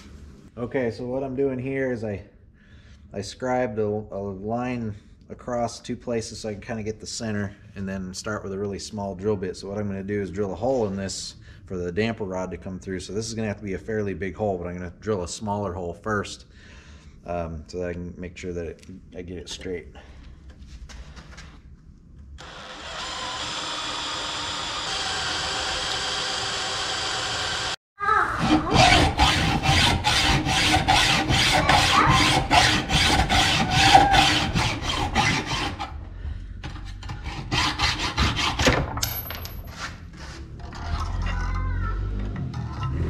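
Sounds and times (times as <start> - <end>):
cordless drill drilling steel: 22.4 - 27.8
hacksaw cutting steel: 28.4 - 36.0, 36.6 - 38.7.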